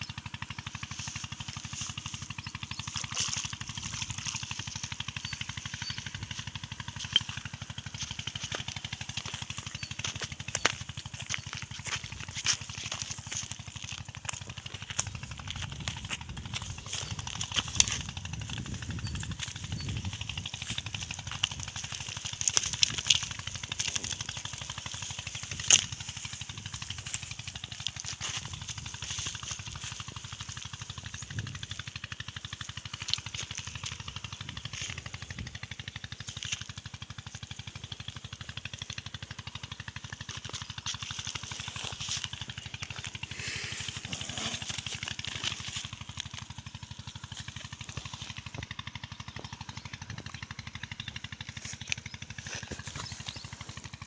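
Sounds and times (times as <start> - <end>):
steady low rumble: 0.0 - 54.0
mesh bag rustling on gravel: 5.7 - 30.0, 41.0 - 48.6.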